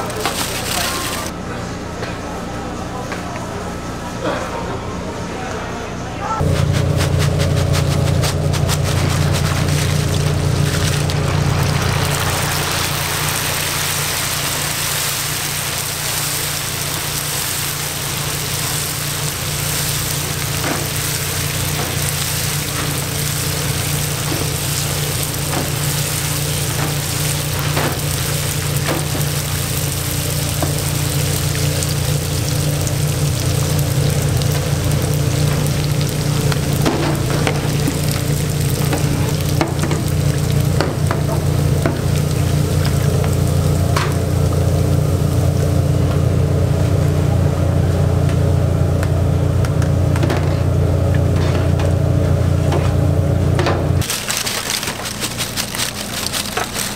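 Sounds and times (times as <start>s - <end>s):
oil sizzling in fryer: 0.0s - 1.3s, 6.4s - 51.4s, 52.0s - 56.9s
steady low hum: 0.9s - 56.9s.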